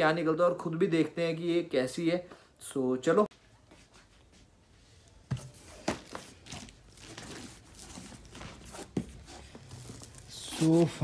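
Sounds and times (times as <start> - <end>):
rustling of cardboard and plastic: 5.2 - 11.0.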